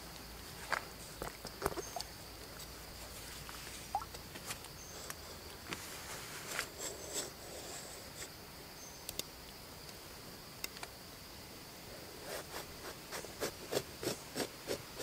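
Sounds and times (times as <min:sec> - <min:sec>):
knife scraping gourd rind: 0:12.2 - 0:15.0.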